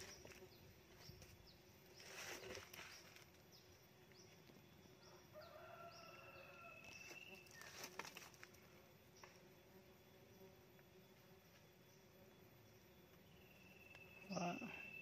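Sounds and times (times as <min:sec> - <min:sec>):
distant rooster crowing: 0:05.2 - 0:07.2.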